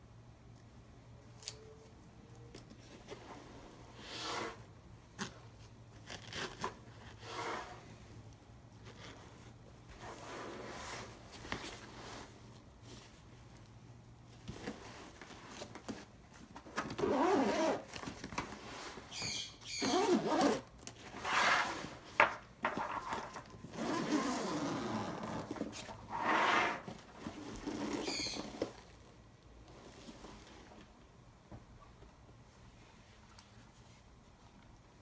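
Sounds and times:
bag fabric rustling: 16.8s - 19.0s, 26.4s - 29.0s
zipper being pulled: 16.9s - 17.9s, 19.8s - 22.0s, 23.7s - 28.8s.

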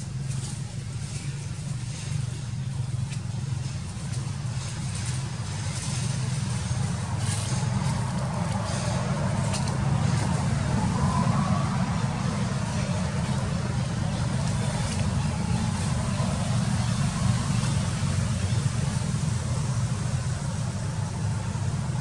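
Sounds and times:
low motor rumble: 0.0s - 22.0s
faint light ticks: 2.9s - 6.1s.

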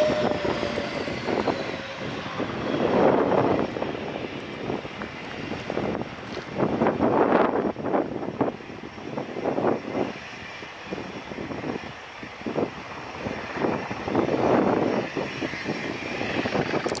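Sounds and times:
jet engine idling: 0.0s - 6.2s
wind gusts on microphone: 0.0s - 17.0s.

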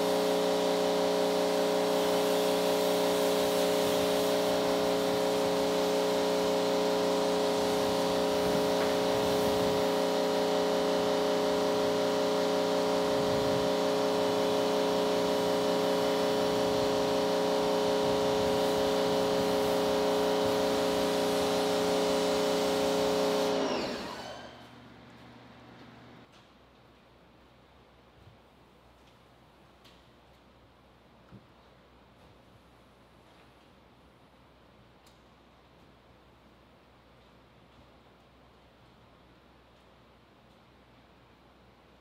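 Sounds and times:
pressure washer motor humming: 0.0s - 26.3s.

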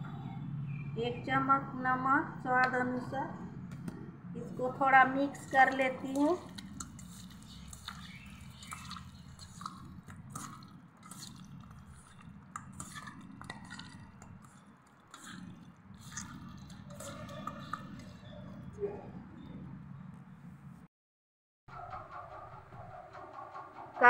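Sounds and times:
wet squelching of hand mixing: 5.2s - 18.4s.

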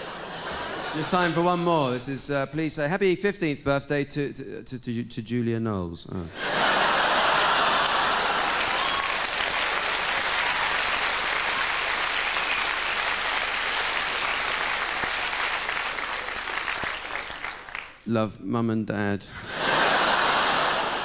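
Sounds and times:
audience laughter: 0.0s - 1.7s, 6.3s - 9.0s, 19.4s - 21.0s
audience applauding: 6.5s - 18.0s.

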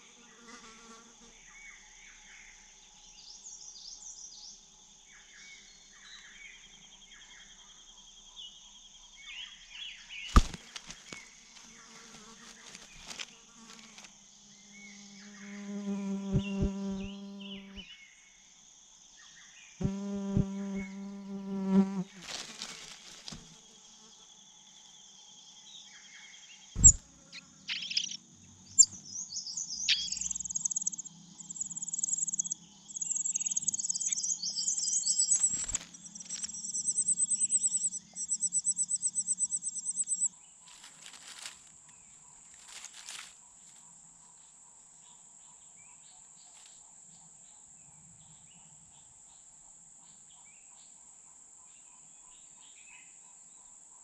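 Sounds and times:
insects buzzing: 9.4s - 45.2s
rapid pulsing high chirps: 26.8s - 27.0s, 27.7s - 28.2s, 29.6s - 40.3s.

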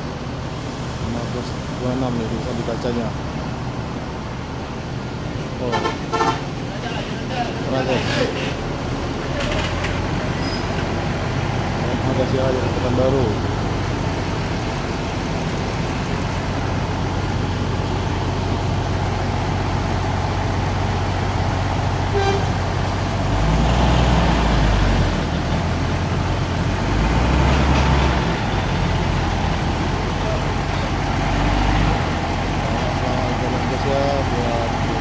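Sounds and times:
bus diesel engines idling: 0.0s - 35.0s
bus horn toot: 5.7s - 6.6s, 22.1s - 22.6s.

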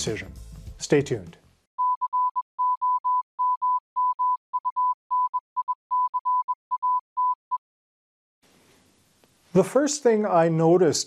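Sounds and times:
morse code beeping: 1.8s - 7.4s.

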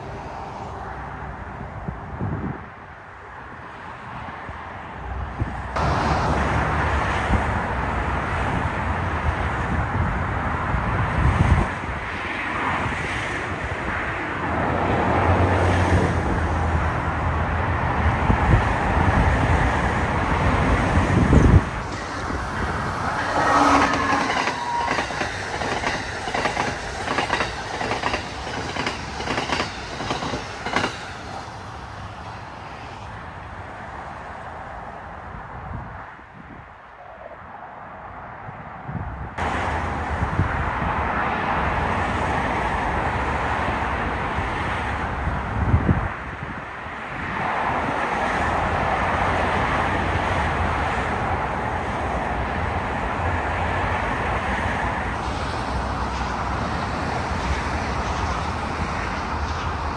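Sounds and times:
train rumble and rail roar: 0.0s - 59.9s
train wheels clickety-clack: 21.8s - 31.5s, 55.2s - 59.9s.

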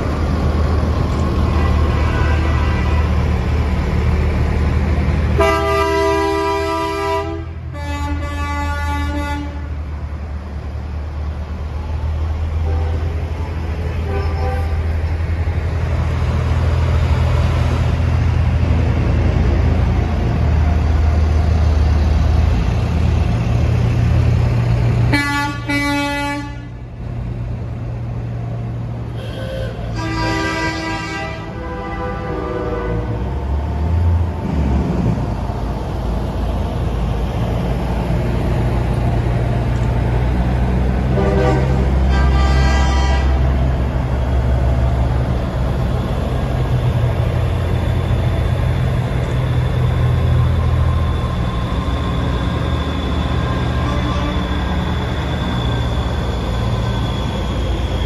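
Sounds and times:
truck diesel engines passing: 0.0s - 58.0s
truck air horn blasts: 1.5s - 3.2s, 5.4s - 9.7s, 14.0s - 14.8s, 25.1s - 26.7s, 29.2s - 33.2s, 41.1s - 43.4s, 53.8s - 54.5s.

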